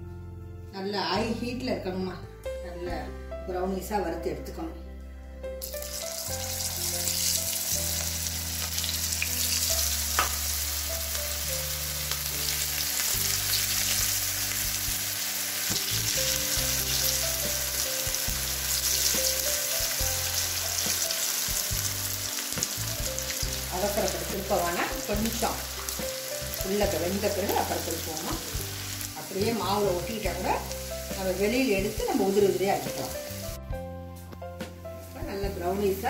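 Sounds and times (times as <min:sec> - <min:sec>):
batter deep-frying sizzle: 0:05.6 - 0:33.6.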